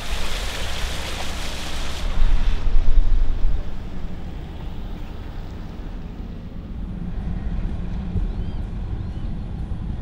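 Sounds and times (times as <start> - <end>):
road noise: 0.0 - 10.0
wind buffeting on microphone: 2.0 - 4.9.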